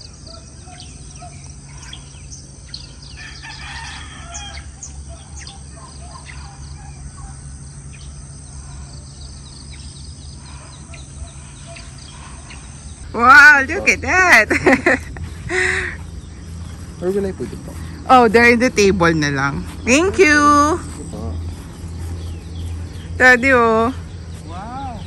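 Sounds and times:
small birds chirping: 0.0s - 25.0s
steady low rumble: 0.0s - 25.0s
rooster crowing: 3.0s - 7.4s.

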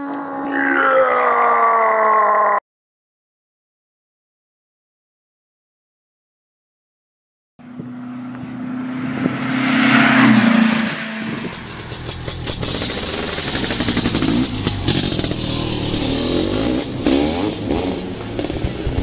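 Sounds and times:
vehicle engine revving: 7.6s - 19.0s.

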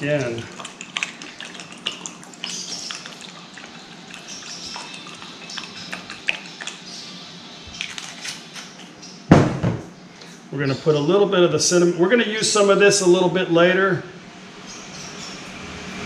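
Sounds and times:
steady low hum: 0.0s - 16.0s
loud thump: 9.3s - 9.9s.

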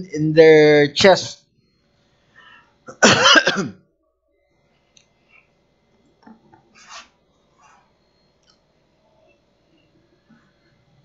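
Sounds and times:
man coughing: 2.9s - 3.8s
faint small sounds: 3.8s - 11.0s.

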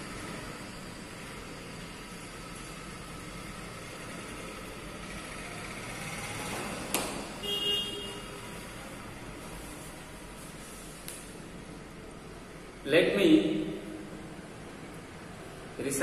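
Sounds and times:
steady background noise: 0.0s - 16.0s
short horn toot: 7.4s - 8.3s.

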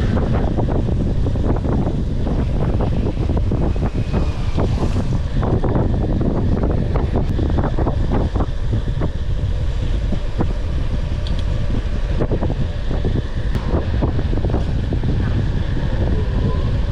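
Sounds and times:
wind buffeting microphone: 0.0s - 16.9s.

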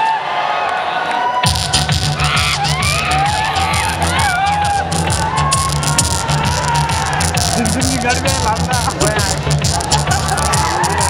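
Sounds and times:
crowd cheering and whooping: 0.0s - 11.0s
loud dance music: 1.4s - 11.0s.

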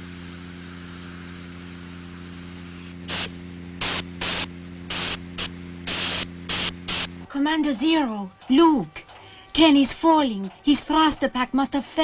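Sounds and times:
low hum and hiss: 0.0s - 12.0s
sputtering jet-hiss bursts: 3.0s - 7.3s.

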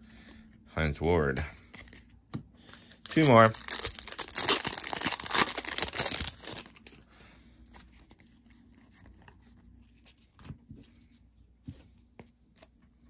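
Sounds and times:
foil pack tearing and crinkling: 3.0s - 7.0s.

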